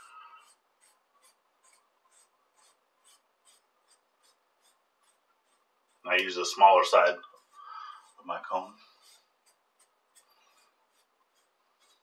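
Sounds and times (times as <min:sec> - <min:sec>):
comb strokes through beard: 0:00.0 - 0:12.0.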